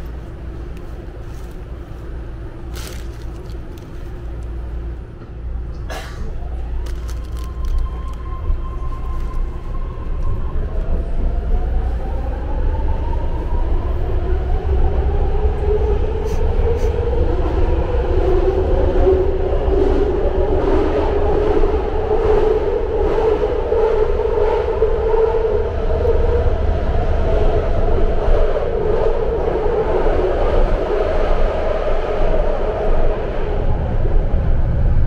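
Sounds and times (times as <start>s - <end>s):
train rumble: 0.0s - 35.0s
train whine: 0.0s - 35.0s.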